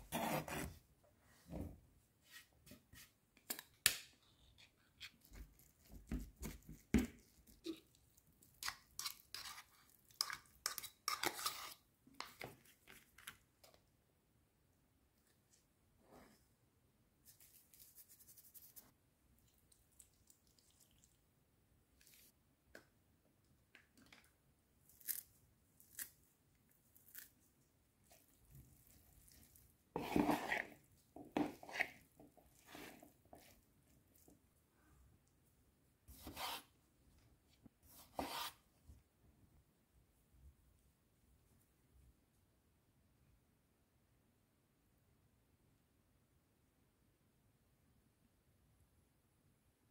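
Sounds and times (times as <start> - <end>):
spoon stirring wet salad in bowl: 5.2 - 13.0, 19.4 - 21.2, 28.0 - 34.4
fork scraping and clinking in tin can: 9.0 - 11.8
scraping tuna into plastic bowl: 30.0 - 33.6.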